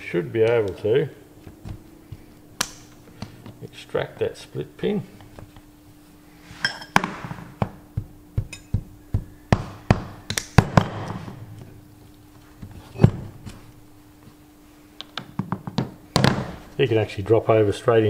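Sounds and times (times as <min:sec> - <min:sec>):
steady low hum: 0:00.0 - 0:18.0
hammer tapping on metal: 0:07.6 - 0:10.2.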